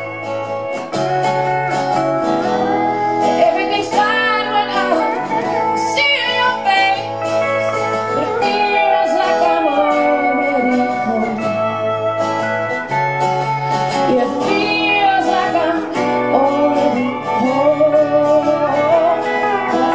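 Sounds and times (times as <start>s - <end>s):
guitar accompaniment: 0.0s - 19.9s
woman singing slow song: 2.9s - 12.2s, 13.5s - 19.9s.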